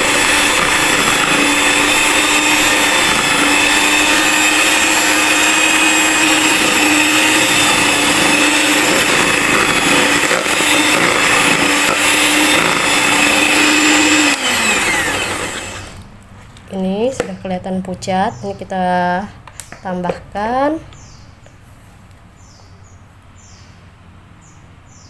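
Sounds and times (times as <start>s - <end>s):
electric hand mixer whining: 0.0s - 16.0s.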